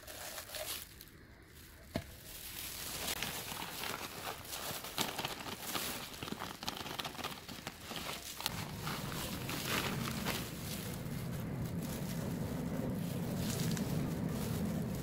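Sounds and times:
plastic crinkling: 0.0 - 15.0
soil pouring and rustling: 0.0 - 15.0
low steady hum: 7.4 - 15.0.

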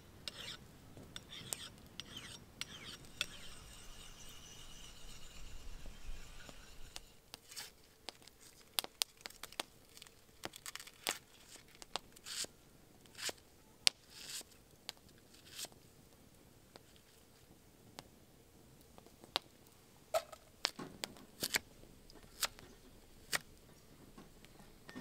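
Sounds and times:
onion tearing and crunching: 8.1 - 11.9.

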